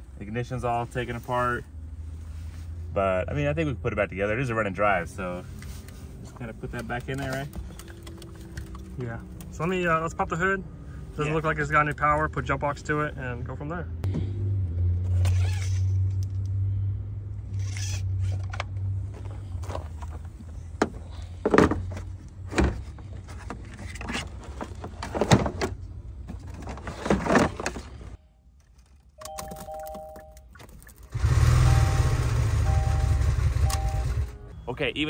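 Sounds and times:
two-tone electronic beep: 29.2s - 30.5s, 31.5s - 34.9s.

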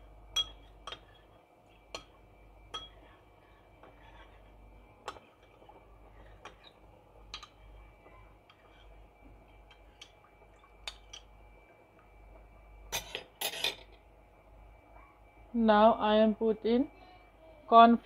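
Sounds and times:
spoon clicking on ceramic bowl: 0.4s - 1.1s.

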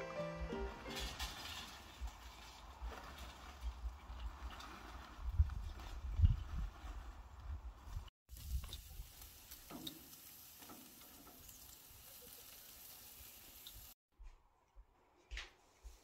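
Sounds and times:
meat sizzling on a grill: 8.3s - 14.0s.

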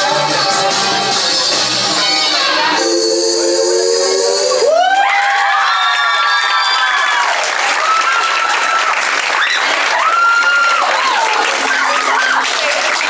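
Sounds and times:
high-pitched shouts: 1.9s - 12.7s
audience applauding and cheering: 4.6s - 13.0s.

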